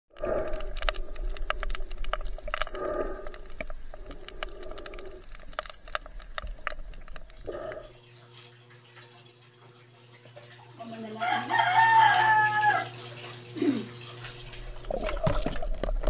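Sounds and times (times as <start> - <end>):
sharp underwater clicks: 0.1 - 8.0
underwater low rumble: 0.1 - 8.0, 14.3 - 16.0.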